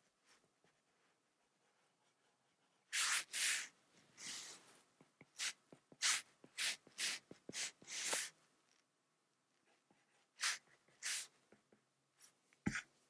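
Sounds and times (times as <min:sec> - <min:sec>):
stylus rubbing on tablet screen: 0:00.8 - 0:08.4.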